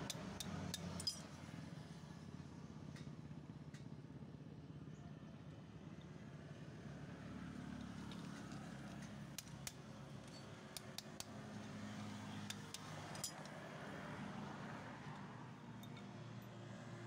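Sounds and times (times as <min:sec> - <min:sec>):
metallic tool clicks and taps: 0:00.0 - 0:01.3, 0:08.1 - 0:11.8, 0:12.4 - 0:13.6.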